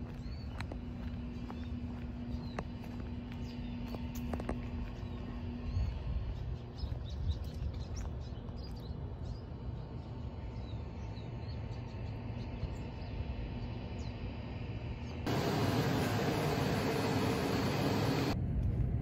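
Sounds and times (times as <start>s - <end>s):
small birds chirping: 0.0s - 18.4s
low outdoor rumble: 0.0s - 19.0s
dense steady noise: 12.8s - 18.4s.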